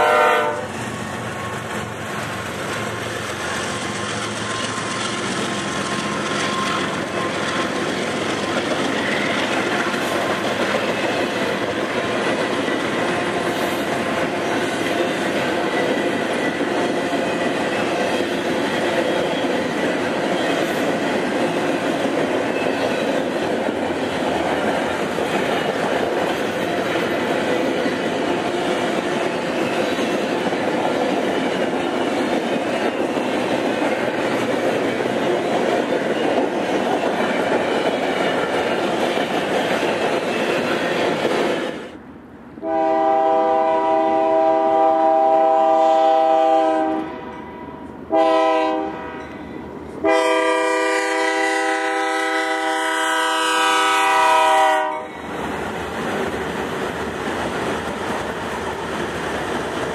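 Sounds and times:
locomotive air horn blasts: 0.0s - 0.7s, 42.6s - 47.2s, 48.1s - 49.3s, 50.0s - 55.1s
freight train rumbling past: 0.0s - 59.9s.

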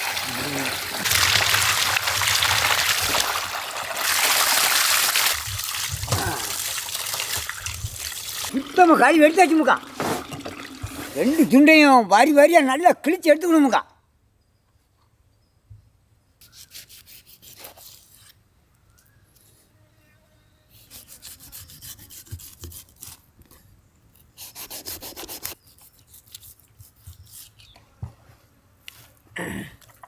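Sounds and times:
knife scraping fish skin: 16.4s - 18.4s, 20.9s - 23.2s, 24.4s - 27.8s.

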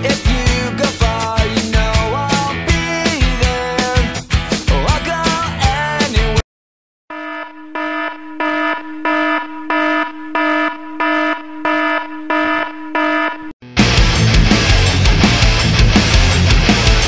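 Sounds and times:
alarm pulsing: 7.1s - 13.6s.

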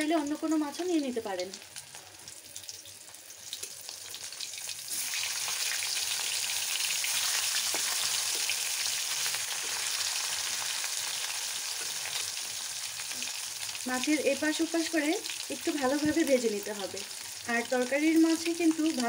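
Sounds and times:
fish sizzling in hot oil: 0.0s - 19.0s
spatula turning fish: 4.4s - 13.7s.

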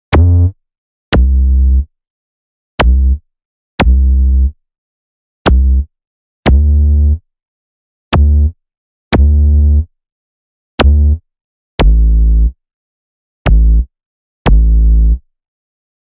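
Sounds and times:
deep synth bass notes: 0.1s - 0.5s, 1.2s - 1.8s, 2.8s - 3.2s, 3.8s - 4.5s, 5.5s - 5.8s, 6.5s - 7.2s, 8.2s - 8.5s, 9.2s - 9.8s, 10.8s - 11.2s, 11.8s - 12.5s, 13.5s - 13.9s, 14.5s - 15.2s.

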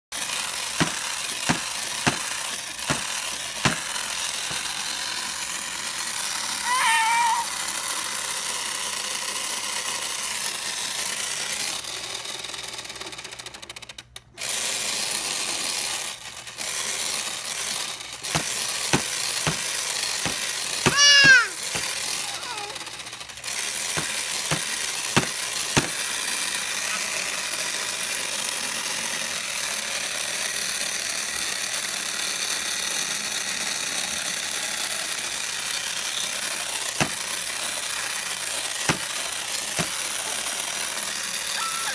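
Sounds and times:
toy saw electronic buzz: 0.1s - 41.9s
baby squealing: 6.6s - 7.6s, 20.8s - 22.8s, 41.5s - 41.9s.

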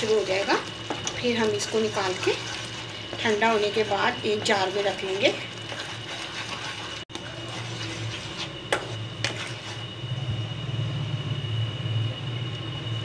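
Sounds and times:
jam bubbling in a pan: 0.0s - 10.1s
steady low hum: 0.0s - 13.0s.

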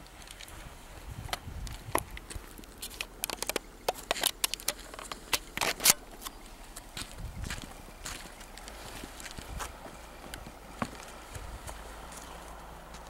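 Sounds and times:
camera handling clicks and knocks: 1.3s - 6.4s.

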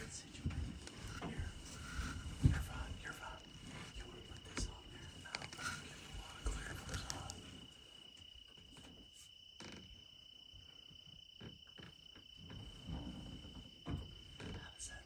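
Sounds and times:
muffled low rustling: 0.0s - 9.2s, 12.5s - 15.0s
high-pitched insect drone: 0.0s - 15.0s.

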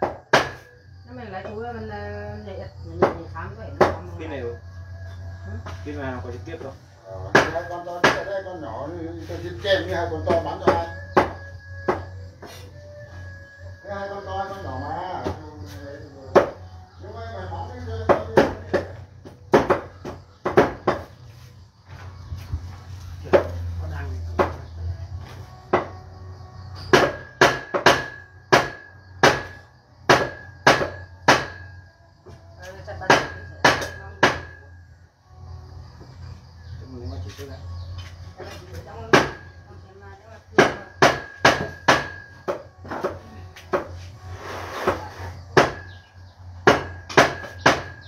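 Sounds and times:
cleaver chopping meat: 45.5s - 46.0s, 46.7s - 48.0s.

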